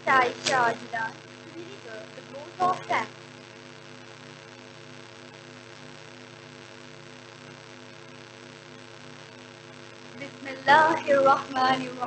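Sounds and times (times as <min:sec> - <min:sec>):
public address hiss: 0:00.0 - 0:03.1, 0:10.2 - 0:12.0
electrical mains hum: 0:00.0 - 0:12.0.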